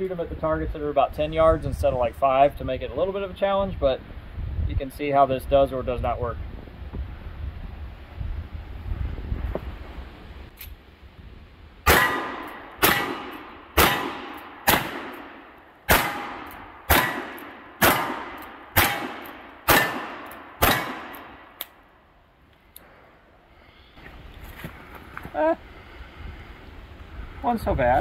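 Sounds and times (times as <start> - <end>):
revolver shots: 11.9 - 21.6.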